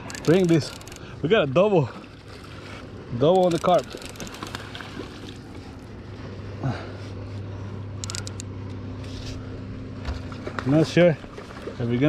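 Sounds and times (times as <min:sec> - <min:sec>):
distant engine drone: 0:00.0 - 0:12.0.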